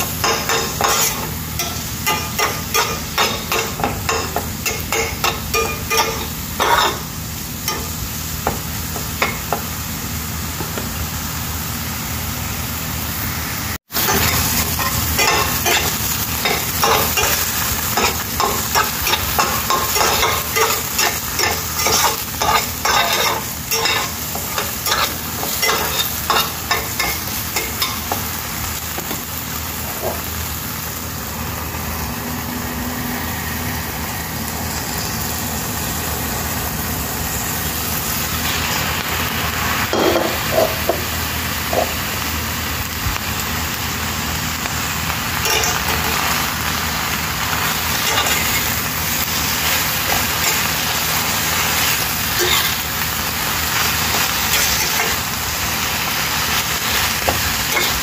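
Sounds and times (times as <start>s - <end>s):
vegetables frying in oil: 0.0s - 58.0s
spatula scraping a pan: 0.2s - 7.1s, 14.0s - 28.0s, 51.6s - 52.8s.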